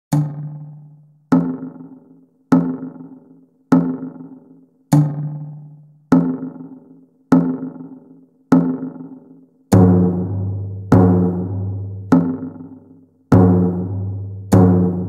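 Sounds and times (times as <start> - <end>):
metronome drum hits: 0.1 - 15.0.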